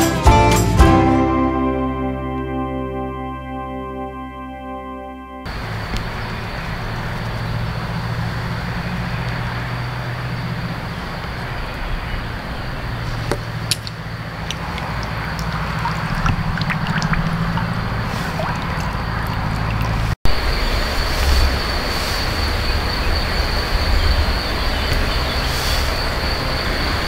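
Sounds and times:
water washing and splashing: 0:05.5 - 0:27.0.

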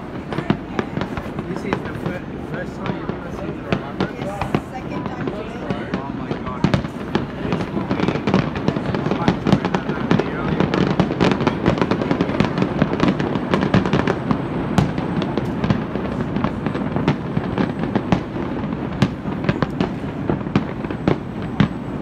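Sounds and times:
fireworks crackling and popping: 0:00.0 - 0:22.0
loud fireworks reports: 0:00.0 - 0:22.0.

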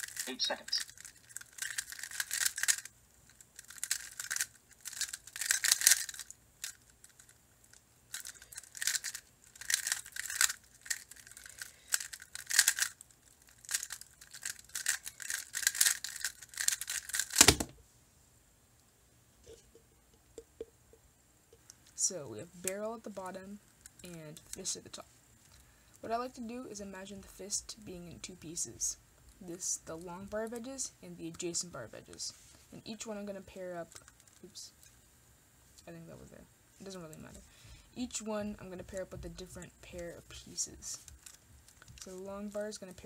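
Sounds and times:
plastic puzzle clicking: 0:00.1 - 0:07.3, 0:08.1 - 0:17.7
puzzle thumped down: 0:17.2 - 0:17.8.

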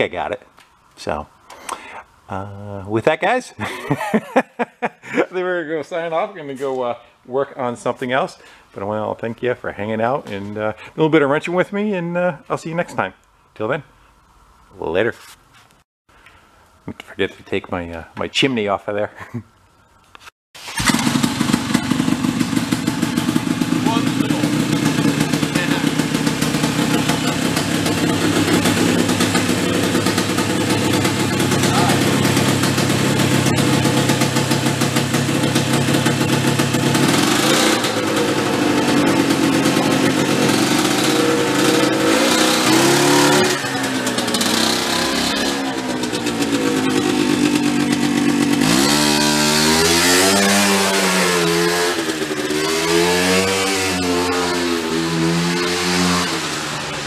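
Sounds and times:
snowmobile engine running: 0:20.8 - 0:53.0.

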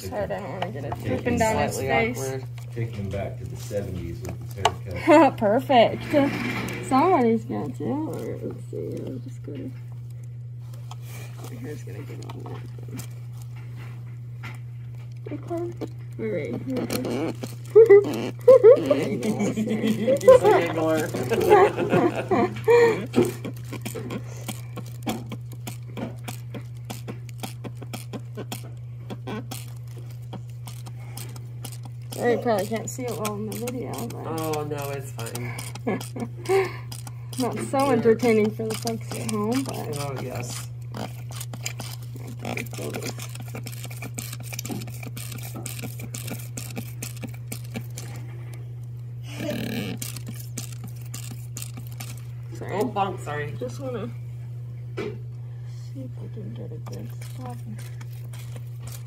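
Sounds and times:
steady low hum: 0:00.0 - 0:59.0
ear sprayer clicking and squirting: 0:15.0 - 0:52.9.

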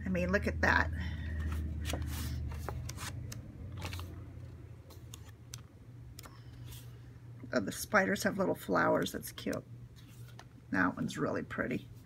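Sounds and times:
low steady hum: 0:00.0 - 0:12.0
paper pages rustling and flipping: 0:01.4 - 0:07.0, 0:10.0 - 0:10.5.

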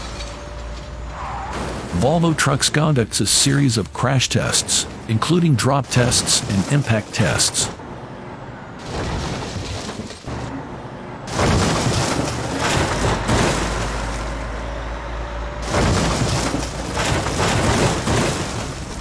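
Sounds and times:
truck crashing: 0:00.0 - 0:19.0.

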